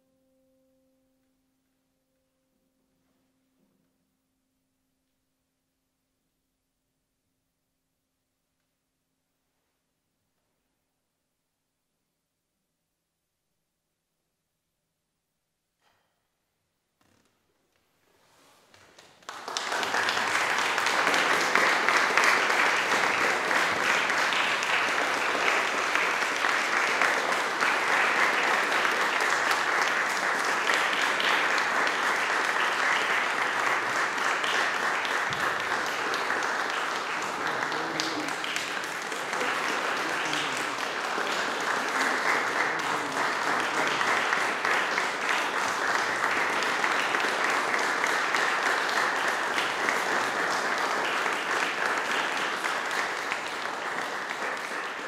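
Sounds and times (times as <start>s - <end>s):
audience applauding: 18.7s - 55.0s.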